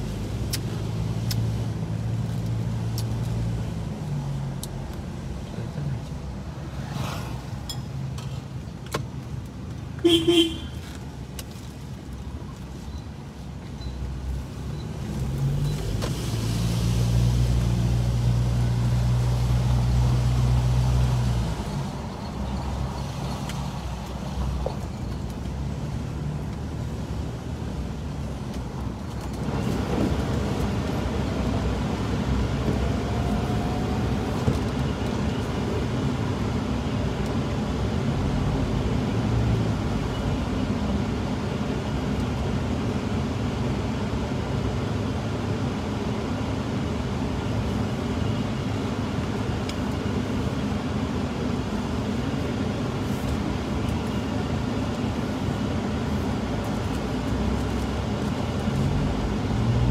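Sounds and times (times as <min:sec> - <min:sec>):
tyre and traffic rumble: 0:00.0 - 0:59.9
car engine drone: 0:13.2 - 0:59.9.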